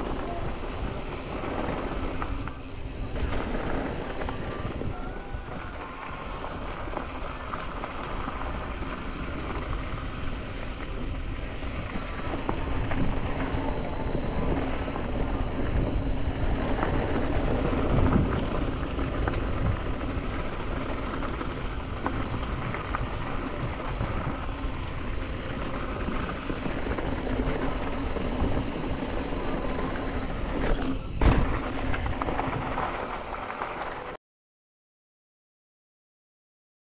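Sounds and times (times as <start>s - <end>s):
wind buffeting microphone: 0.0s - 33.3s
bike tyre rumble over gravel: 0.0s - 34.2s
bike knocks and thumps: 30.6s - 33.1s.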